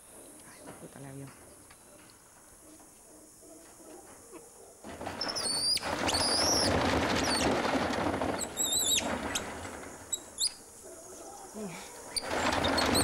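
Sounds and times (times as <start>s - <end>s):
wire mesh cage rattling: 4.6s - 13.0s.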